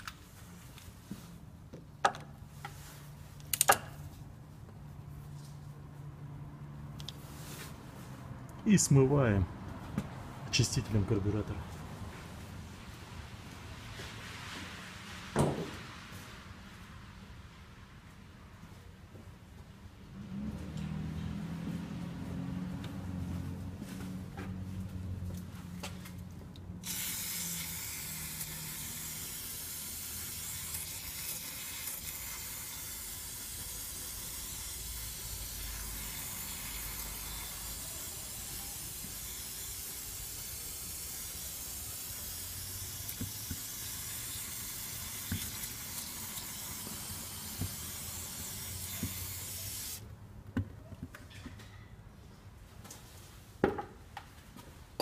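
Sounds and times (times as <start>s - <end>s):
aerosol can spraying hiss: 26.8s - 50.0s.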